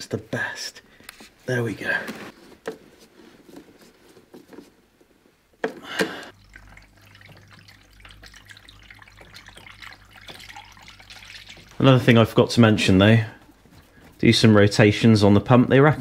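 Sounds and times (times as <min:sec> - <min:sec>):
low steady hum: 0:02.8 - 0:16.0
fuel dripping: 0:06.3 - 0:12.3.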